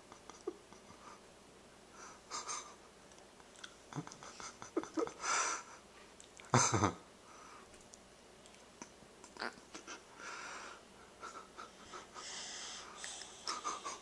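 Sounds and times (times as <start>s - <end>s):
soft breathing: 7.2s - 7.8s, 10.1s - 11.0s, 11.6s - 14.0s.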